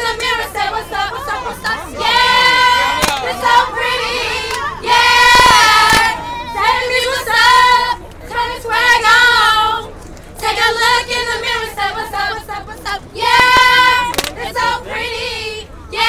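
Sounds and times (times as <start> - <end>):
women chanting in unison: 0.0 - 9.8, 10.4 - 16.0.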